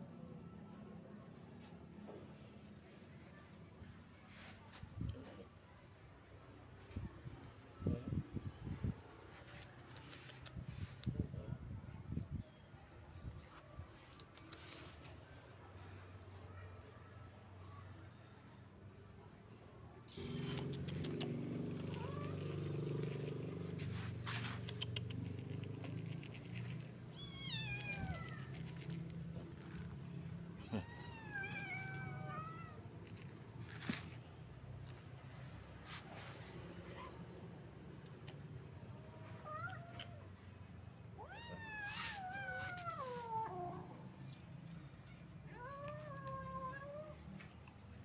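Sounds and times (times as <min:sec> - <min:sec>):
cat meowing: 0:27.1 - 0:28.9, 0:30.6 - 0:32.9.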